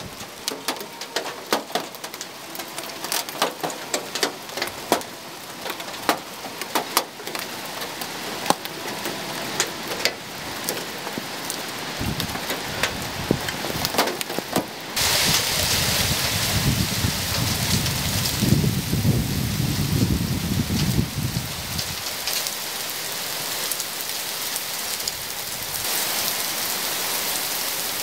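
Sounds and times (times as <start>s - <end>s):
heavy rain: 0.0s - 28.0s
hailstones striking hard surfaces: 0.1s - 19.0s
low thunder rumble: 12.0s - 13.9s, 15.0s - 22.0s.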